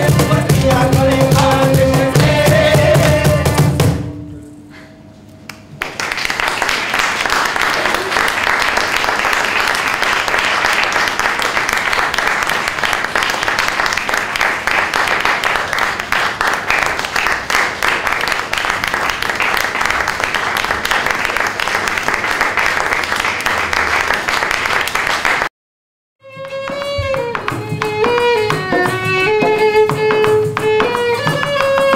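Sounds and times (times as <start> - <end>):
audience applauding: 5.4 - 25.5
plucked-string music: 26.2 - 31.9.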